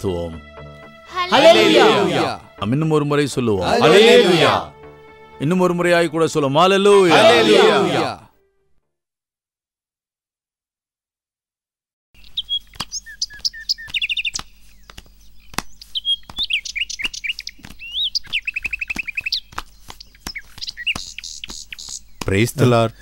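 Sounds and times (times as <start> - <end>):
birds chirping and twittering: 12.2 - 23.0.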